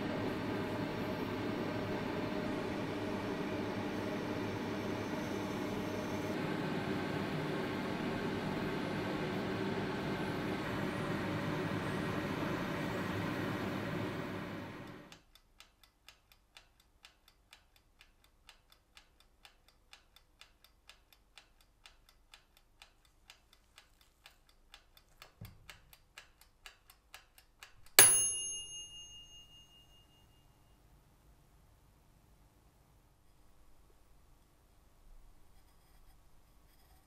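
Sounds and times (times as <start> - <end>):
clockwork timer ticking: 14.8 - 30.0
timer bell ding: 28.0 - 30.8.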